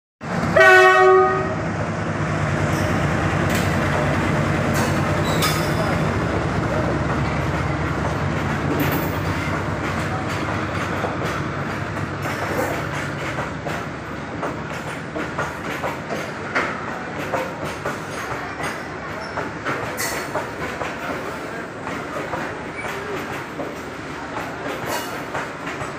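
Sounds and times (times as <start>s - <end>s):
freight wagons rumbling on track: 0.2s - 25.9s
locomotive horn blast: 0.5s - 1.6s.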